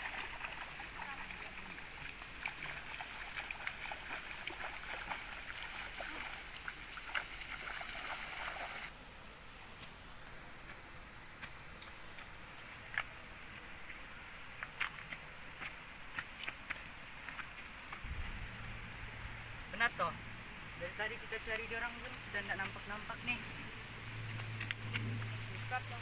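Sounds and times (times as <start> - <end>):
feet splashing through muddy water: 0.0 - 8.9, 14.6 - 18.1.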